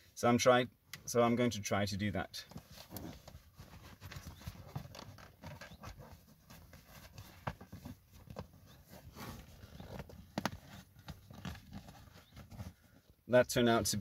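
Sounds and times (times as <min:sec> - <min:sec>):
seat cover material rustling: 0:02.5 - 0:13.2.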